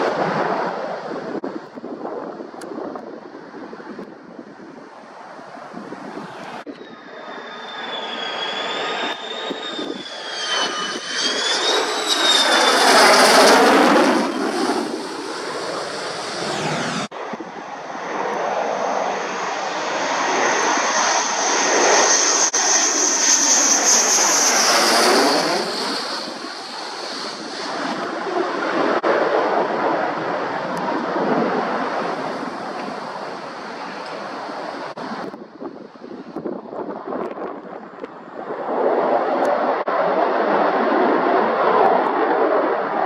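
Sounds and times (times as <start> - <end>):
jet roar passing overhead: 0.0 - 43.0
high turbine whine: 5.2 - 36.6.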